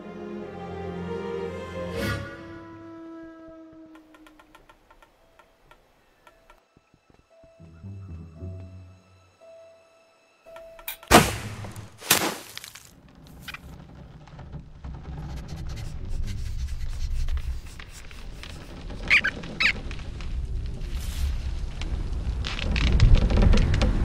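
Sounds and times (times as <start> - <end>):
high cartoon squeaks: 18.2 - 19.8
low rumble: 19.8 - 24.0.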